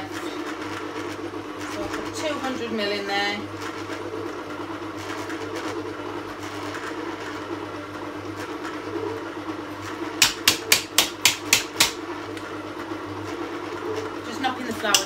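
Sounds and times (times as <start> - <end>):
stand mixer motor running: 0.0 - 15.0.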